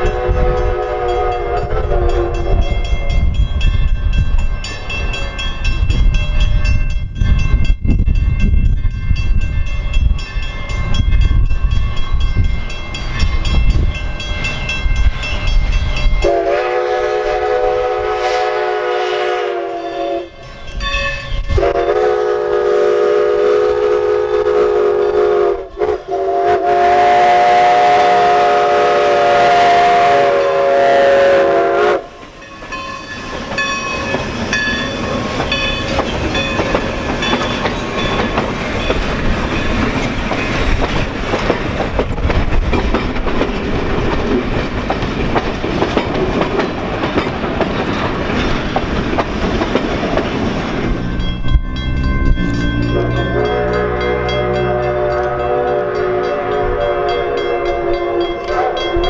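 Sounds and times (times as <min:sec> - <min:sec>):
steam locomotive chime whistle: 0:00.0 - 0:40.7, 0:50.9 - 0:59.0
train wheels clacking on rails: 0:19.7 - 0:59.0.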